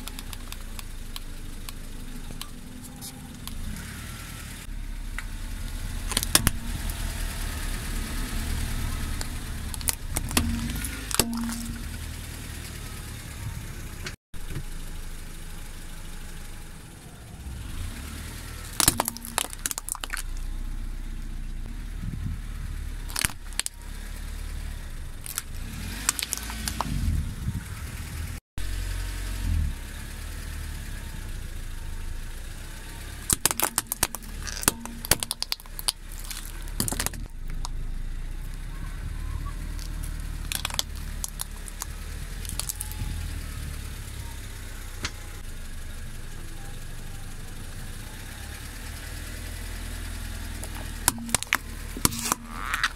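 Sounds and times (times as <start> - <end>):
plastic cracking under tyre: 0.0 - 2.6, 5.6 - 7.0, 8.7 - 12.1, 18.7 - 20.5, 23.0 - 23.8, 25.2 - 27.0, 33.3 - 37.8, 39.6 - 43.4, 50.5 - 52.9
car engine idling: 0.0 - 52.9.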